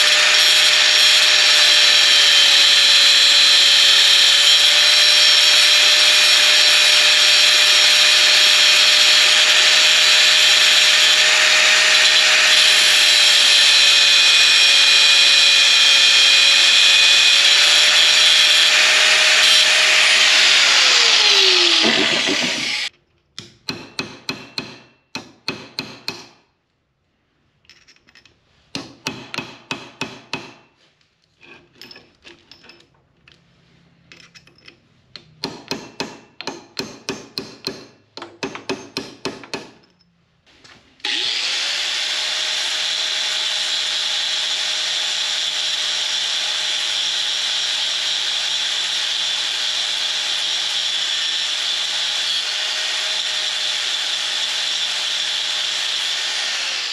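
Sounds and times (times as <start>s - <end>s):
angle grinder whining: 0.0s - 22.9s, 41.0s - 56.9s
hammer striking metal punch: 23.4s - 26.4s, 35.4s - 39.8s.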